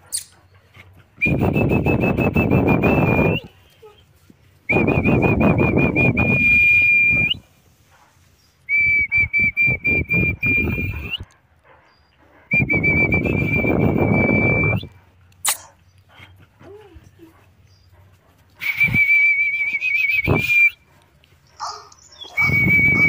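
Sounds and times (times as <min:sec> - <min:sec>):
high whistle blasts: 0:04.7 - 0:07.4, 0:08.7 - 0:11.2, 0:12.5 - 0:14.9, 0:18.6 - 0:20.8, 0:22.3 - 0:23.0.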